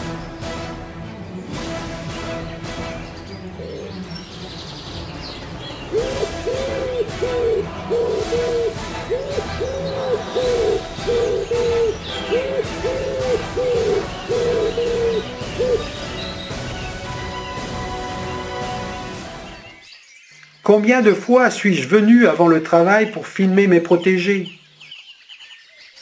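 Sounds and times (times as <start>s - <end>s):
small birds chirping: 2.2s - 26.0s
wood pigeon cooing: 3.4s - 4.2s, 5.8s - 16.2s.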